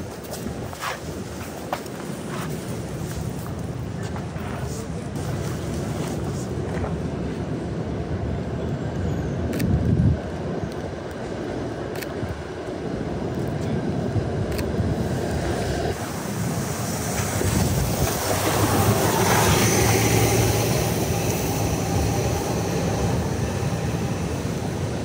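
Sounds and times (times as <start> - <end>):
rain hissing: 15.0 - 25.0.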